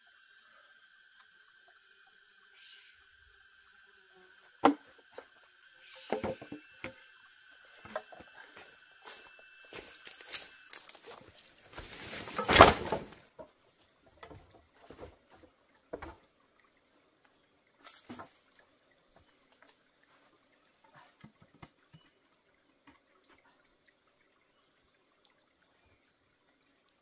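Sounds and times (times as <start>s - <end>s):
steady high whine: 0.0s - 10.9s
bamboo poles knocking: 4.6s - 5.3s, 6.0s - 7.0s, 7.8s - 8.3s.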